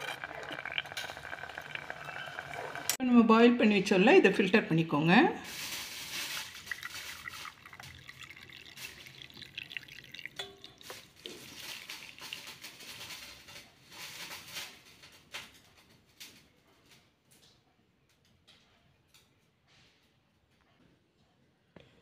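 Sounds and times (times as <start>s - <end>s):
water pouring through strainer: 0.0s - 3.0s, 5.5s - 14.7s.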